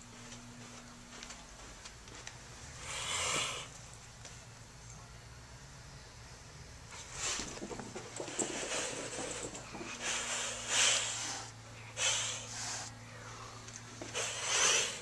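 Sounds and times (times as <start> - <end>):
kitten hissing: 2.8 - 3.7, 9.9 - 13.0, 14.1 - 15.0.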